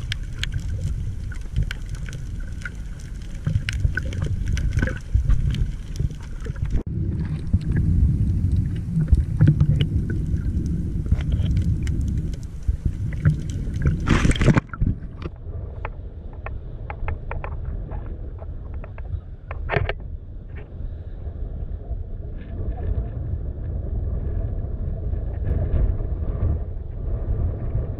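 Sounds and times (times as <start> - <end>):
scattered ticks: 0.0 - 6.8
crackling clicks underwater: 0.0 - 20.7
underwater water rumble: 0.0 - 27.9
loud splash: 14.0 - 14.8.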